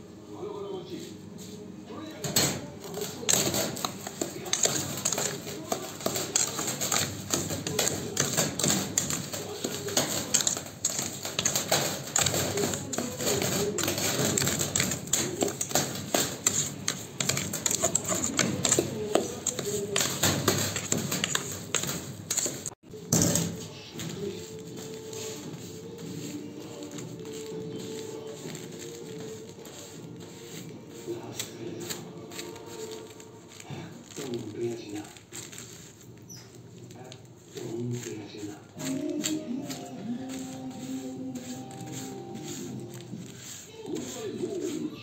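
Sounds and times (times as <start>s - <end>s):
metal spoon scraping steel bowl: 2.9s - 33.6s.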